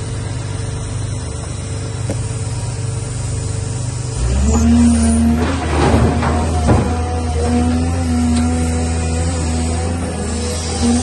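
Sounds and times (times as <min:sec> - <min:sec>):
excavator diesel engine running: 0:00.0 - 0:11.0.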